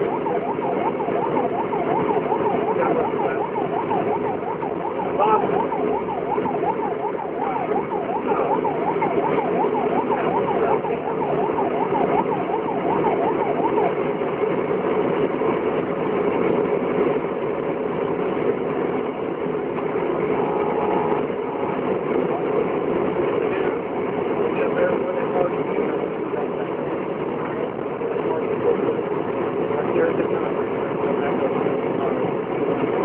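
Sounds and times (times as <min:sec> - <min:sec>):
vehicle engine and road noise: 0:00.0 - 0:33.0
yelping siren: 0:00.0 - 0:33.0.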